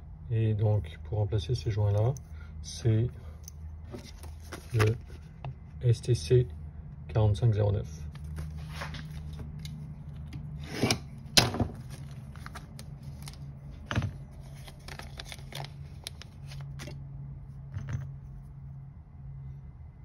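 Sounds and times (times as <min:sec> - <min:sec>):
plastic bag crinkling: 0:14.3 - 0:16.9.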